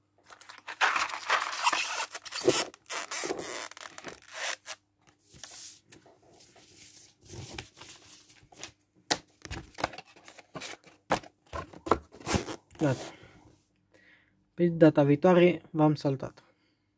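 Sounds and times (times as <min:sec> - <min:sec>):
packaging rustling: 0:00.2 - 0:04.8.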